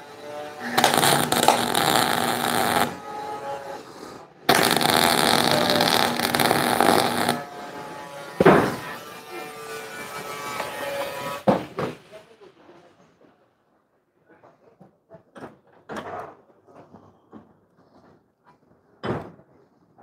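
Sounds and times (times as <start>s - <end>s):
welder arc crackling: 0.6s - 3.1s, 4.5s - 7.5s.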